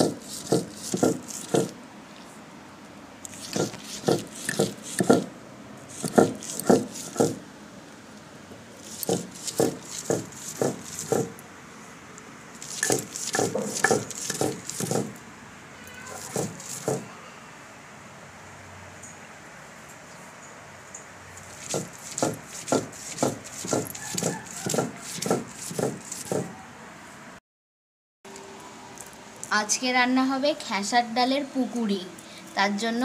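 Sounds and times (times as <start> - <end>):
stone roller grinding on stone: 0.0 - 1.8, 3.3 - 5.3, 5.9 - 7.4, 8.8 - 11.4, 12.6 - 15.2, 16.1 - 17.1, 21.4 - 26.5.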